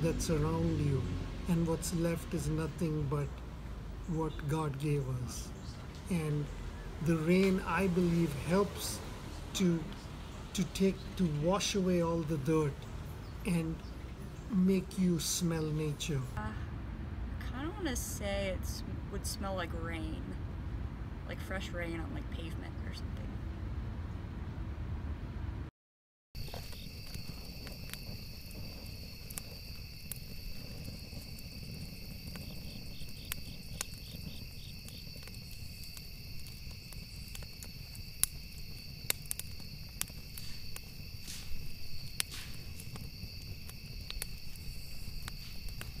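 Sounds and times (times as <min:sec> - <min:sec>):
crickets trilling: 0:00.0 - 0:03.4, 0:04.0 - 0:16.4, 0:26.4 - 0:46.0
campfire crackling and popping: 0:00.0 - 0:16.4, 0:26.4 - 0:46.0.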